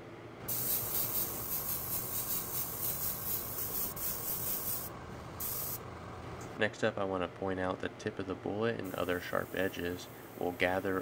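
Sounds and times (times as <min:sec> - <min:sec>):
airbrush hissing: 0:00.5 - 0:05.8, 0:08.9 - 0:11.0.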